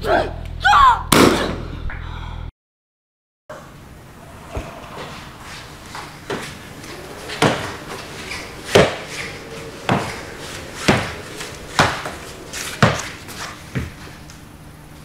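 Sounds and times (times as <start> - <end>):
cane knocking on hard floor: 7.3 - 10.2, 10.8 - 14.0.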